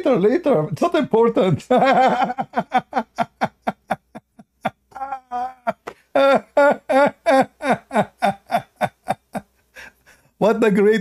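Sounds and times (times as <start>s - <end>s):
man laughing: 1.6s - 9.6s.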